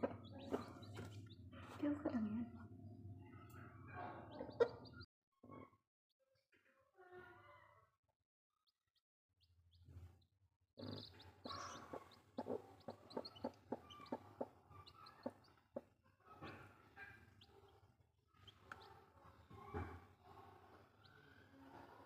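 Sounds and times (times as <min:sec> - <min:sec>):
chicks peeping: 0:00.0 - 0:02.3, 0:03.2 - 0:05.1, 0:10.8 - 0:22.0.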